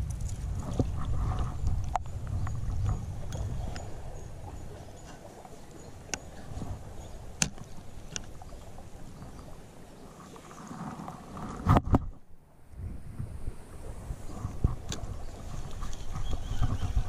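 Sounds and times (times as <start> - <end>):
shallow water sloshing: 0.0 - 17.0.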